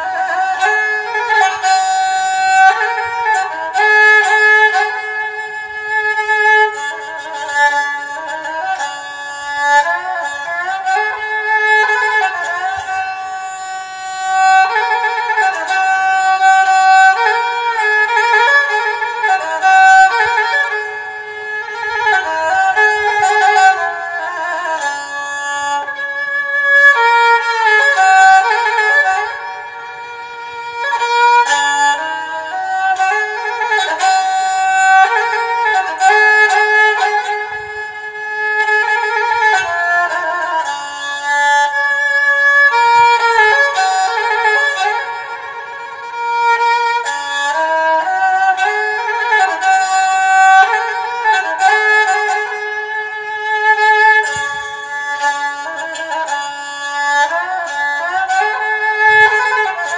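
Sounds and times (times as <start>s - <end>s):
bowed fiddle melody: 0.0s - 59.9s.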